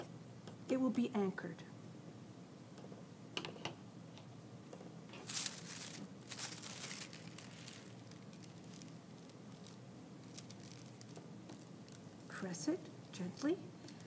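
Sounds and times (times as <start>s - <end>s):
tissue paper rustling: 5.2s - 12.0s.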